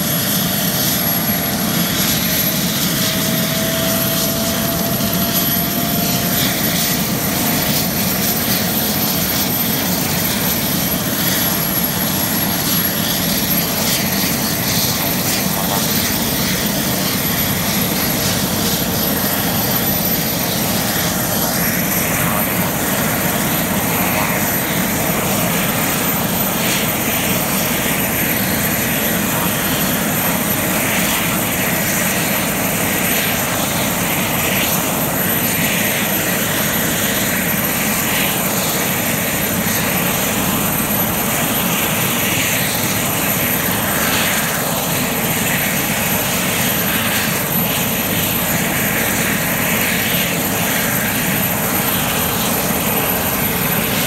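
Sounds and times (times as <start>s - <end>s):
helicopter turbine and rotors: 0.0s - 54.0s.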